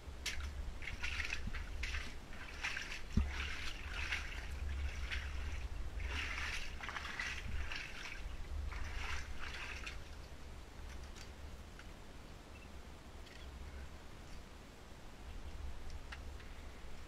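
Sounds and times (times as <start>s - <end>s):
boots splashing through water: 0.2s - 10.2s.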